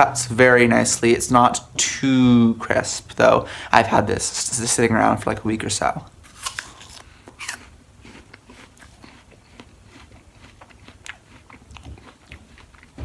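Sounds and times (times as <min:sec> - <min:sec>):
crunch of biting an apple: 0:06.3 - 0:12.9
crunchy chewing: 0:06.3 - 0:13.0.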